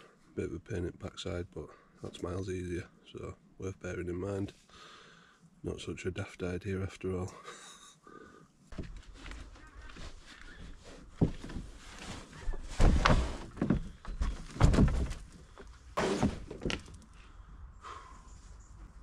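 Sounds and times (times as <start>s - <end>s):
objects thunking set down: 11.2s - 17.0s.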